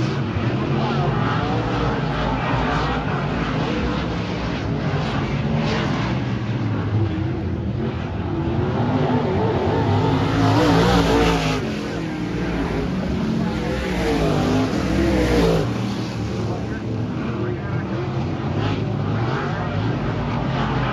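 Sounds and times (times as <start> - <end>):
race car engines revving: 0.0 - 20.9.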